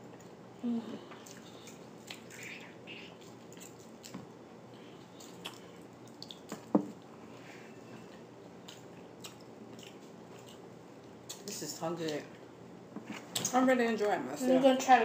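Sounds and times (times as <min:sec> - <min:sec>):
wet chewing and eating: 0:01.1 - 0:04.4, 0:05.0 - 0:07.2, 0:07.9 - 0:12.2.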